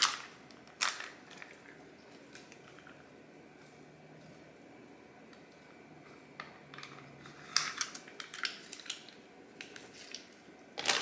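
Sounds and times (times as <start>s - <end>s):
plastic packaging crinkling: 0.0s - 3.0s, 6.8s - 11.0s.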